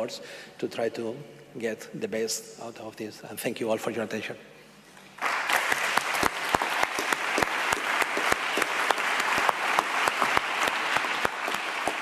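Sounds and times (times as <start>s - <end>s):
audience applauding: 5.2s - 12.0s
single sharp claps: 5.2s - 12.0s.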